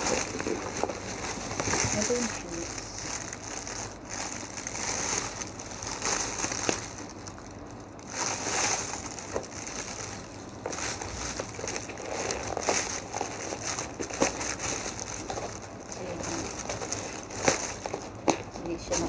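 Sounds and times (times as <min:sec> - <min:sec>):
paper and plastic packaging rustling: 0:00.0 - 0:19.0.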